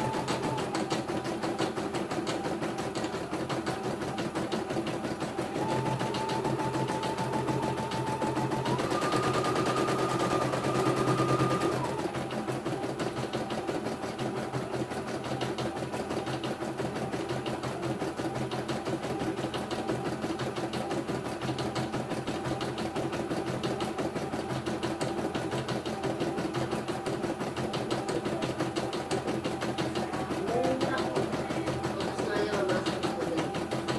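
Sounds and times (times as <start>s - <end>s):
embroidery machine needle chatter: 25.8s - 33.9s.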